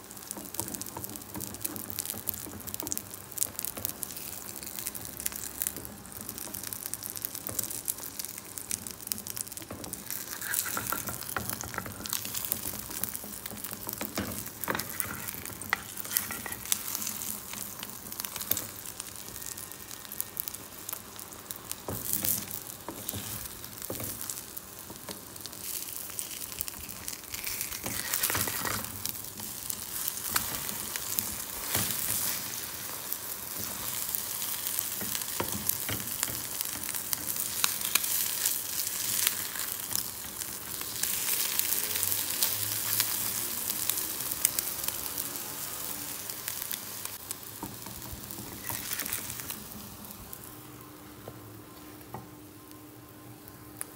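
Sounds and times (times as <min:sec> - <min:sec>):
omelette sizzling in oil: 0:00.0 - 0:50.8
wooden spatula scraping pan: 0:10.1 - 0:17.6.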